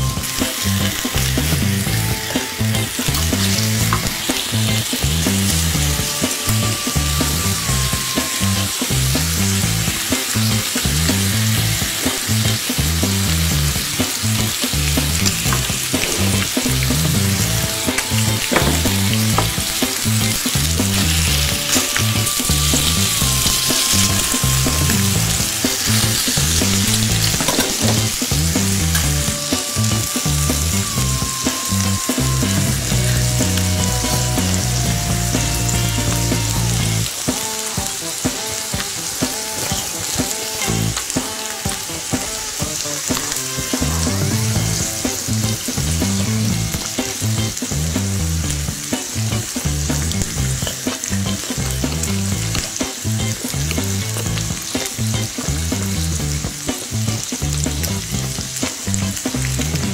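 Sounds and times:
meat sizzling in grill pan: 0:00.0 - 0:59.9.

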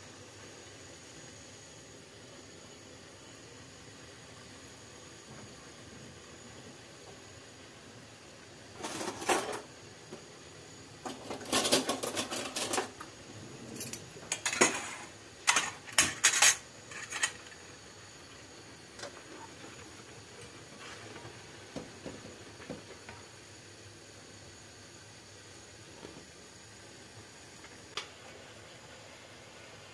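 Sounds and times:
syrup simmering hiss: 0:00.0 - 0:29.9
metal pans clattering on stove grate: 0:08.8 - 0:09.7, 0:11.0 - 0:13.0, 0:13.8 - 0:17.6.

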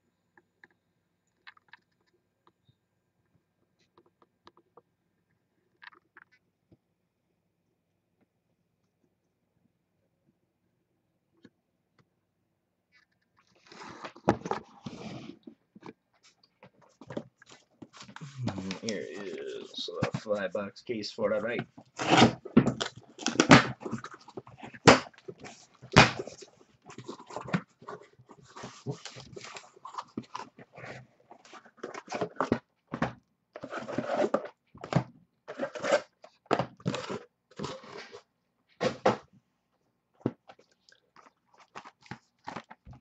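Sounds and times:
cardboard scraping and rustling: 0:13.6 - 0:15.6, 0:21.4 - 0:39.2.

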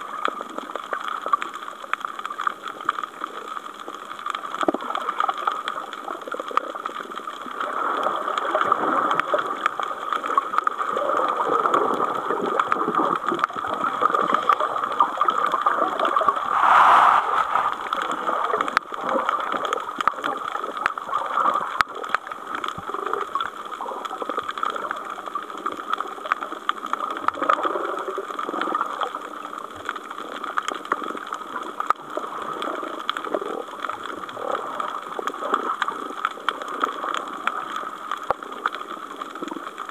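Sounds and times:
muffled underwater hiss: 0:07.1 - 0:23.2.

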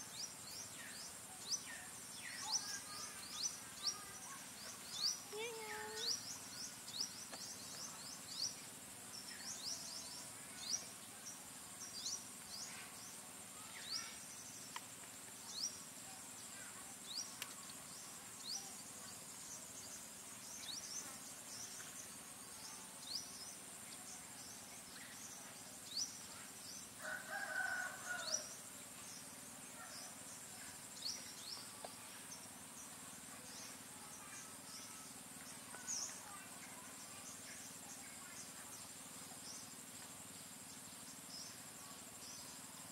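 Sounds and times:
high insect drone: 0:00.0 - 0:42.9
distant rooster call: 0:27.0 - 0:28.5.

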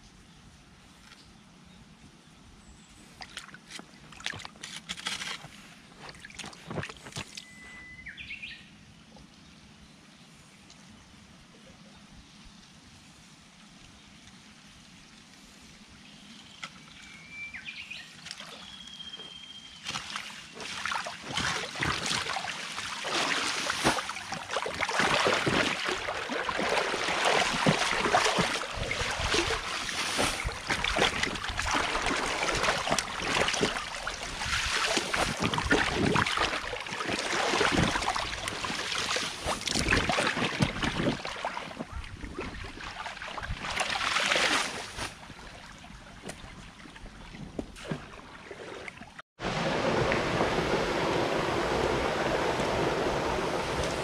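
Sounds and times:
water splashing and sloshing: 0:03.0 - 0:07.6, 0:18.1 - 0:54.0.

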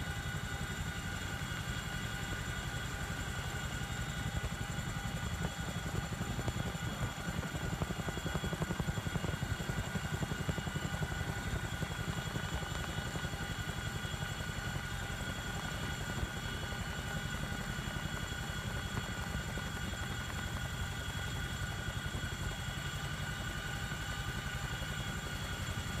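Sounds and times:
helicopter high whine: 0:00.0 - 0:26.0
helicopter rotor beat: 0:00.0 - 0:26.0.

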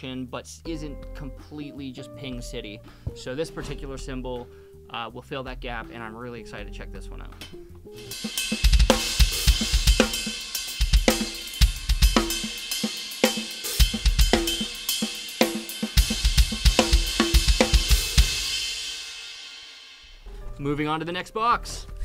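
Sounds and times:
snare drum: 0:08.0 - 0:19.0
cymbals: 0:08.0 - 0:20.2.

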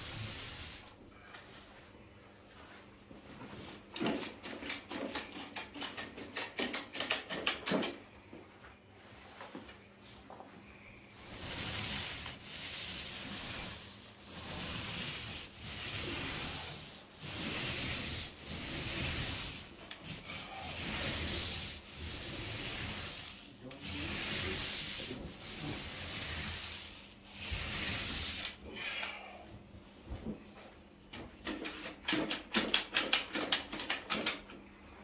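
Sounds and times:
paint roller swishing on ceiling: 0:00.0 - 0:28.8, 0:29.8 - 0:35.0.

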